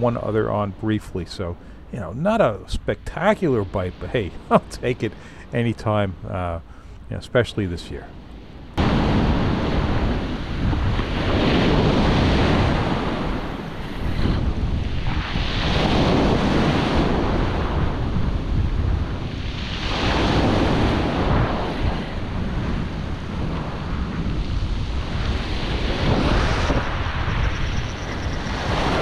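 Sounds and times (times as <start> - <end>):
surf breaking on gravel beach: 8.8 - 27.6
wind blowing on microphone: 8.8 - 29.0.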